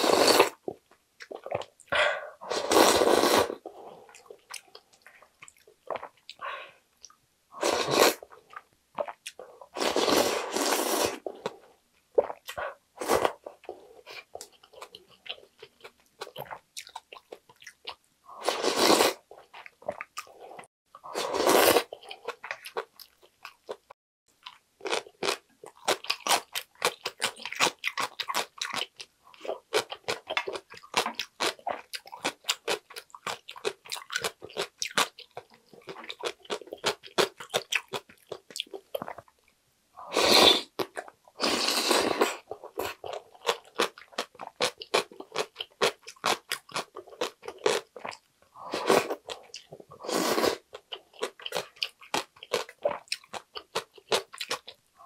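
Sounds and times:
loud slurps of broth: 0.0 - 0.6, 2.4 - 3.6, 7.6 - 8.2, 9.8 - 11.3, 18.4 - 19.2, 21.1 - 21.9, 40.1 - 40.8, 41.4 - 42.4, 50.0 - 50.7
crunchy chewing: 24.4 - 39.2.

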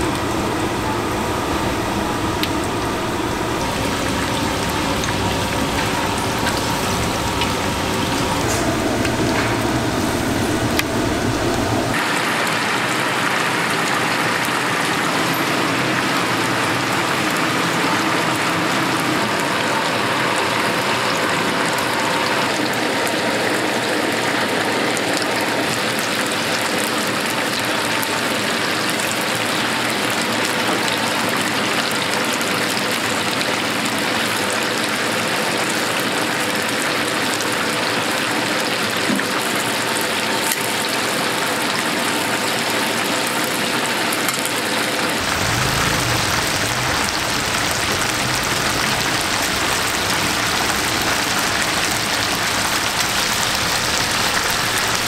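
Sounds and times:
low rumble: 0.0 - 12.0, 45.2 - 55.0
chicken sizzling in hot oil: 45.2 - 55.0.

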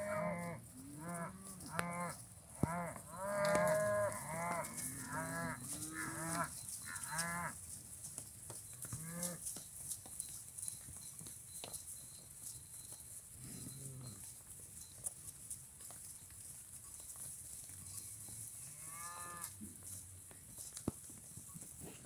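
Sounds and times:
cattle mooing: 0.0 - 7.5.

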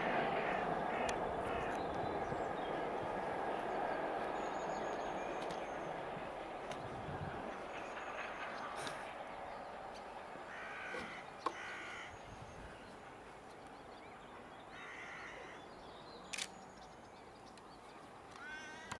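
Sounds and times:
crow cawing: 0.4 - 1.8, 10.4 - 12.2, 14.7 - 15.6, 18.4 - 19.0.

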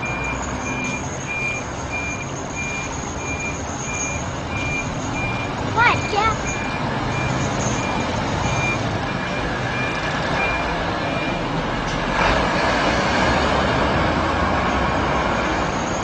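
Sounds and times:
reversing beeper: 0.0 - 11.5
truck engine running: 0.0 - 16.0.

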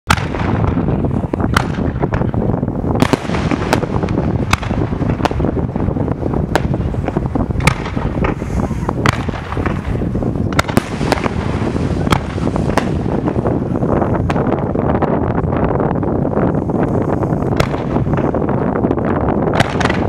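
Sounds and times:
firework shells bursting: 0.1 - 14.6, 17.4 - 18.6, 19.5 - 20.0.

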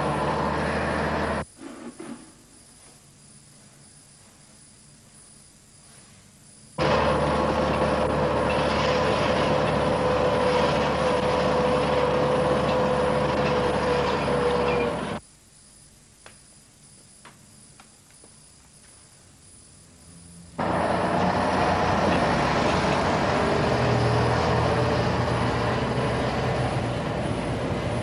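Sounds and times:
vehicle engine running: 0.0 - 1.4, 6.8 - 15.2, 20.6 - 28.0
road traffic: 0.0 - 2.2, 6.8 - 15.2, 20.0 - 28.0.

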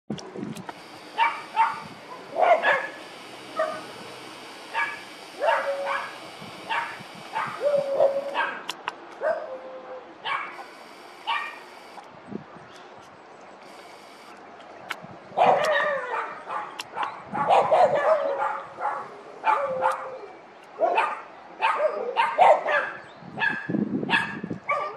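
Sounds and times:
dog barking: 1.2 - 3.0, 4.7 - 10.7, 11.3 - 11.6, 15.4 - 24.9.

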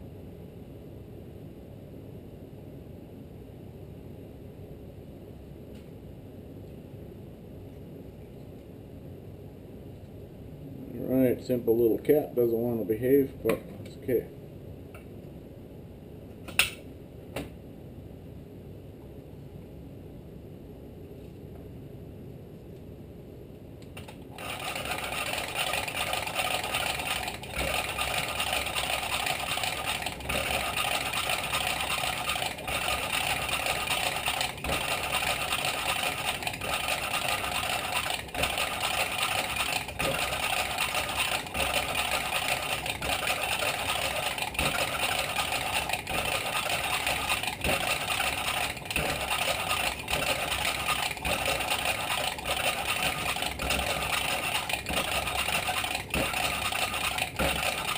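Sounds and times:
whir of tool gearing: 24.0 - 57.9
valve grinding against seat: 24.4 - 57.9.

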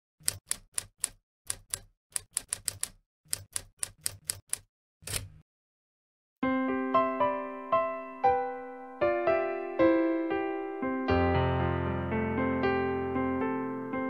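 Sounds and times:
typewriter keys clacking: 0.2 - 5.4.

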